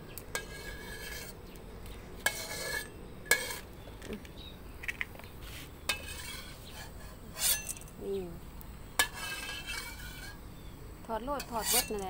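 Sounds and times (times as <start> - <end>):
metal spatula scraping a wok: 0.3 - 1.4, 2.2 - 3.7, 5.4 - 8.0, 8.9 - 10.6, 11.4 - 12.0.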